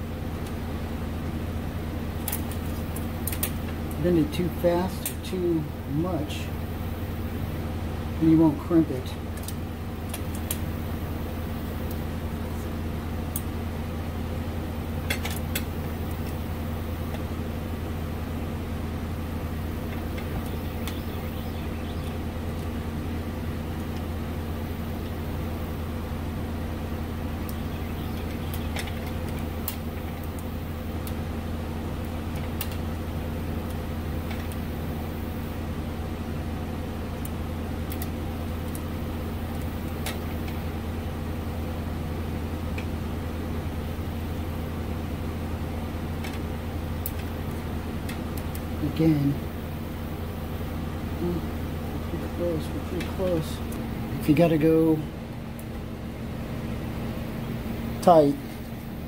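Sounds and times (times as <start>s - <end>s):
low machine hum: 0.0s - 59.0s.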